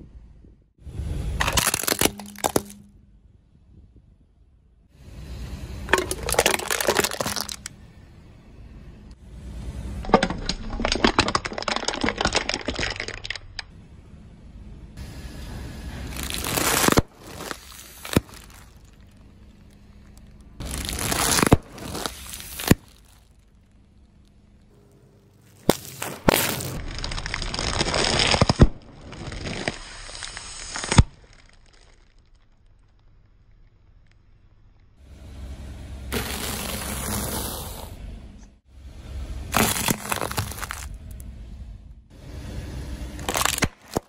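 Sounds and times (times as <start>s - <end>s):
tyre crushing plastic objects: 1.4s - 2.9s, 5.9s - 7.7s, 10.1s - 13.5s, 16.1s - 23.4s, 25.4s - 32.9s, 39.5s - 41.0s, 43.2s - 44.0s
sharp cracks: 16.2s - 23.8s, 25.4s - 34.9s, 43.2s - 44.0s.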